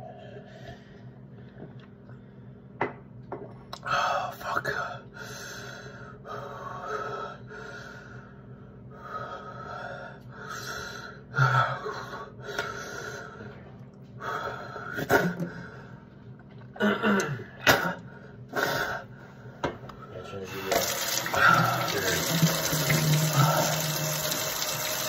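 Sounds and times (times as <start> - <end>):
man breathing heavily: 5.1 - 16.1
man coughing: 16.8 - 18.0.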